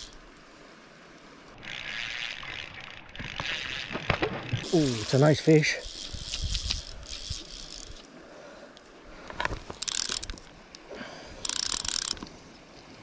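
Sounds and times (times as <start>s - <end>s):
fly reel ratchet clicking: 0.0s - 0.2s, 4.6s - 8.1s, 9.6s - 10.5s, 11.4s - 12.3s.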